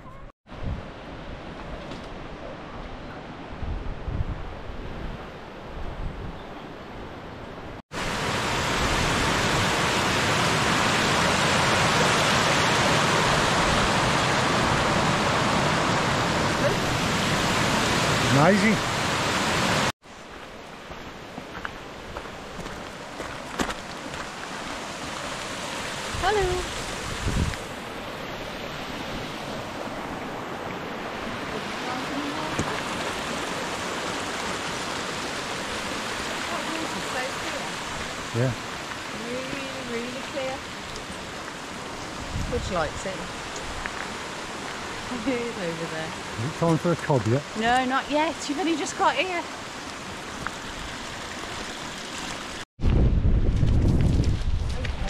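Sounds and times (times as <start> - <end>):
running water rushing: 7.9 - 52.7.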